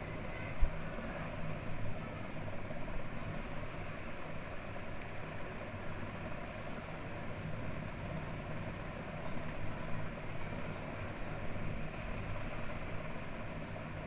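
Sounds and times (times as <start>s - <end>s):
low background hum and hiss: 0.0s - 14.0s.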